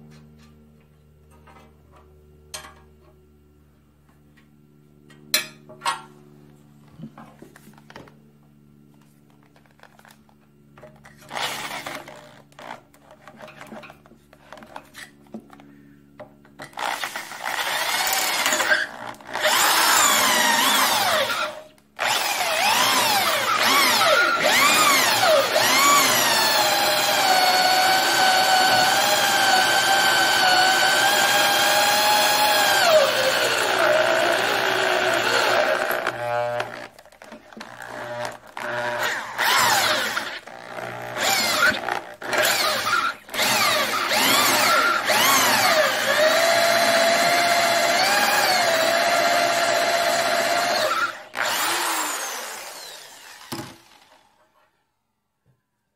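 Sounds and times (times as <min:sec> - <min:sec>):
rotary tool drilling metal: 0:11.2 - 0:12.8, 0:16.6 - 0:54.4.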